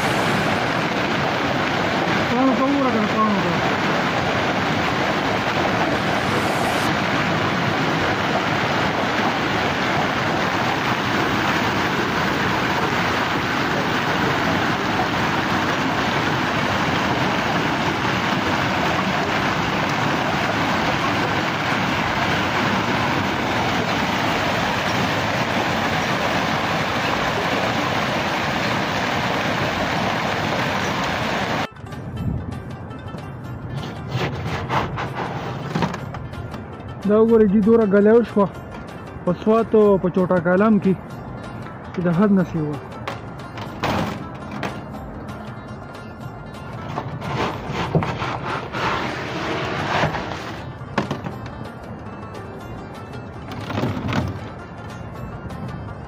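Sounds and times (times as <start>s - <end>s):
heavy rain and hail pouring: 0.0s - 31.7s.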